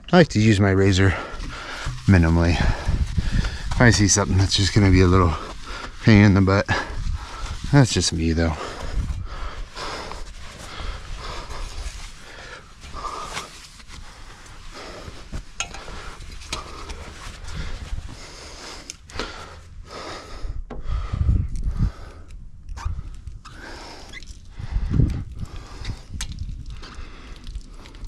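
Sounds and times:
man breathing heavily: 1.0 - 3.9, 6.7 - 7.7, 8.5 - 28.0.

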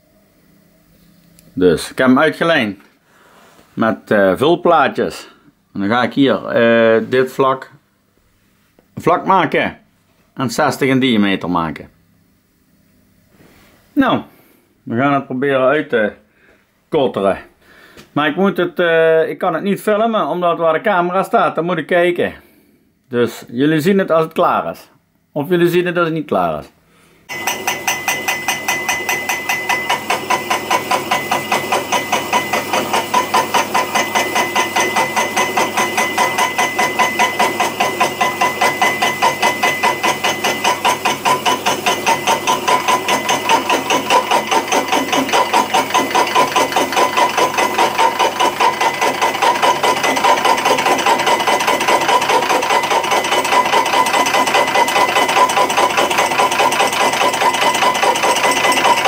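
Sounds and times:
thin steady whine: 27.2 - 55.5
lathe boring head cutting: 27.3 - 59.0
rhythmic knocking from cutter: 27.3 - 59.0.

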